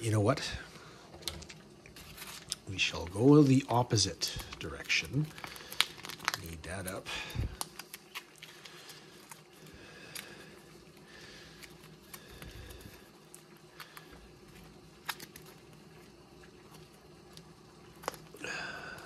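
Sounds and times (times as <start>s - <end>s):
packet crinkling: 1.2s - 19.0s.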